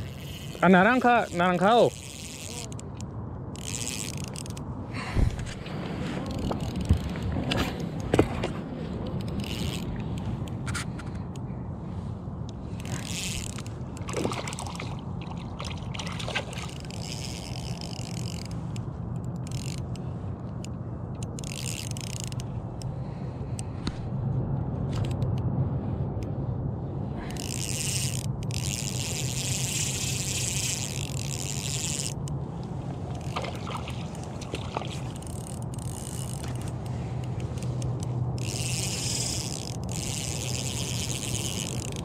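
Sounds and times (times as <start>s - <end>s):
fishing reel cranking: 0.0s - 4.7s, 6.2s - 7.3s, 9.2s - 10.8s, 12.7s - 20.0s, 20.6s - 22.8s, 27.2s - 32.4s, 33.1s - 42.0s
reel clicking: 0.0s - 4.7s, 6.2s - 11.5s, 12.4s - 22.9s, 27.3s - 42.0s.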